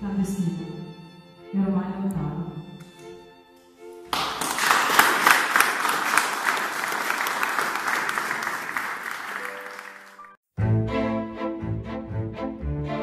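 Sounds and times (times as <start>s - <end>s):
string music: 0.0s - 6.3s, 8.4s - 13.0s
audience applauding: 4.1s - 10.4s.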